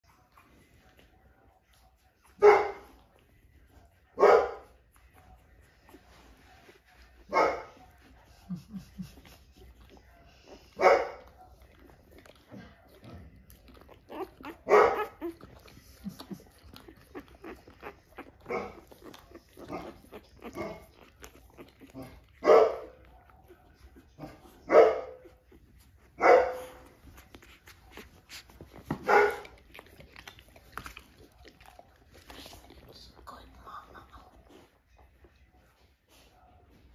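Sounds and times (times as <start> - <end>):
dog barking: 2.4 - 3.0, 4.2 - 4.7, 7.3 - 7.8, 10.7 - 11.4, 14.1 - 15.4, 18.4 - 18.9, 22.0 - 23.3, 24.2 - 25.3, 26.2 - 26.9, 28.9 - 29.6.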